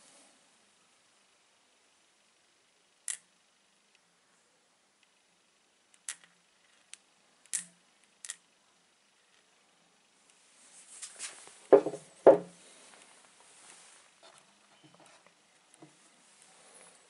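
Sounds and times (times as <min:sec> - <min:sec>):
magnet clicking against stone: 0:05.9 - 0:08.4.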